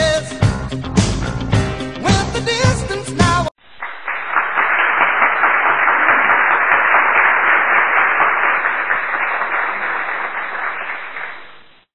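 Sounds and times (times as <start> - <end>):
audience applauding: 3.8 - 11.9.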